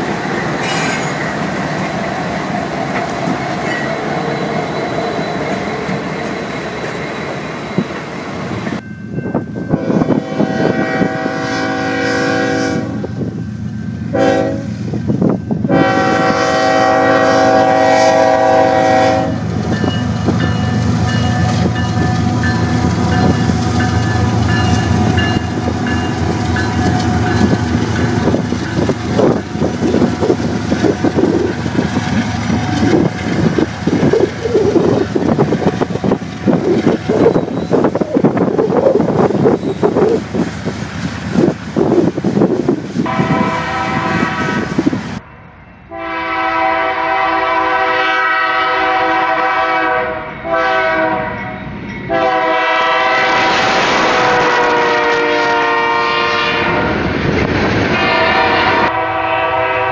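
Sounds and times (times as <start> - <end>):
train wheels rumbling on rails: 0.0 - 45.2, 45.9 - 59.9
locomotive droning: 0.0 - 57.2
locomotive air horn blasts: 9.7 - 13.2, 14.1 - 14.9, 15.6 - 19.5, 43.0 - 44.9, 45.9 - 51.5, 52.1 - 57.0, 57.9 - 59.9
wheels clicking over rail joints: 21.2 - 42.9.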